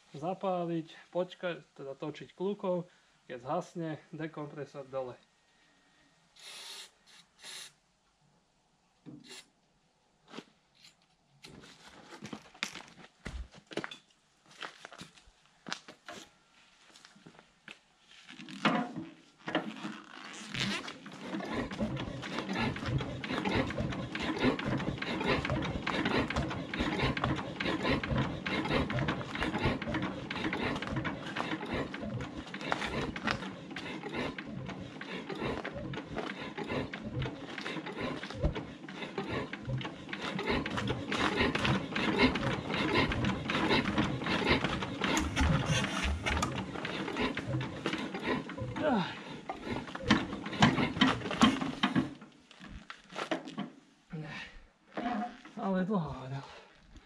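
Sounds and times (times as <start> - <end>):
diesel engine cranking clatter: 20.6 - 52.3
engine firing weakly: 21.2 - 51.0.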